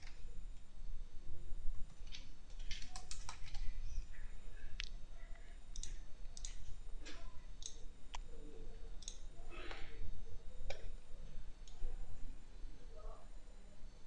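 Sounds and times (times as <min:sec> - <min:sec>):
low steady hum: 0:00.0 - 0:14.0
computer mouse clicking: 0:02.0 - 0:03.7, 0:05.7 - 0:06.8, 0:07.6 - 0:08.3, 0:09.0 - 0:09.8.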